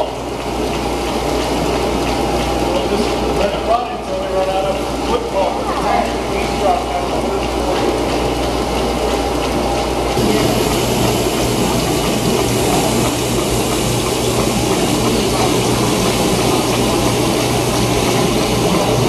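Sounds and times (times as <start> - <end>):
running water: 0.0 - 19.0
machine drone with low hum: 4.2 - 19.0.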